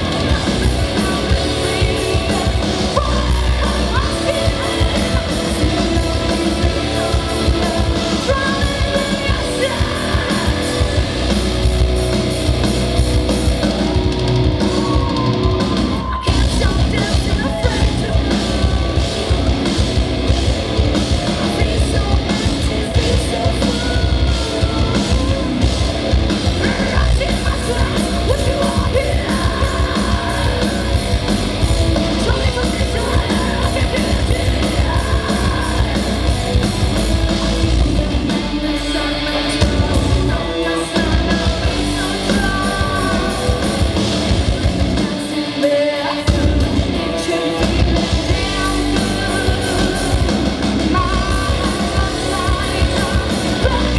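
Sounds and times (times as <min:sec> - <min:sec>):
woman singing and screaming: 0:00.0 - 0:10.9, 0:14.6 - 0:19.0, 0:50.9 - 0:53.9
live metal band playing: 0:00.0 - 0:53.9.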